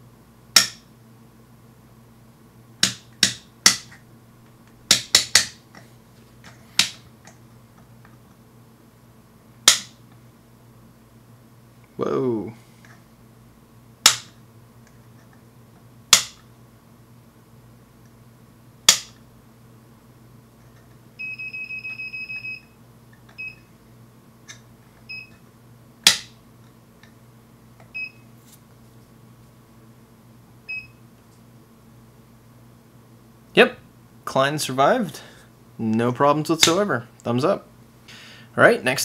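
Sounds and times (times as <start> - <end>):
multimeter buzzing beep: 21.2 - 22.8, 23.4 - 23.7, 25.1 - 25.4, 27.9 - 28.3, 30.7 - 31.0.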